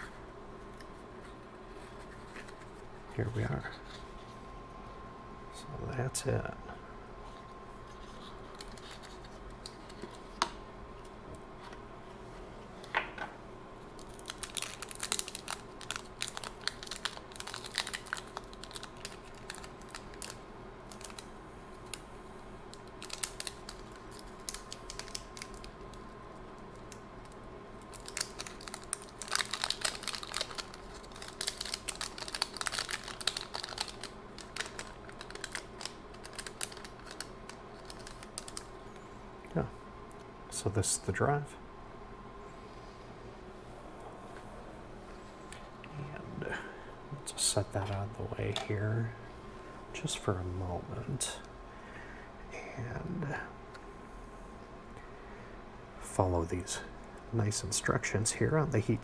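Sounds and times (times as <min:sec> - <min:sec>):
packaging clicks and crinkling: 0:08.0 - 0:10.5, 0:13.9 - 0:22.0, 0:22.7 - 0:38.8.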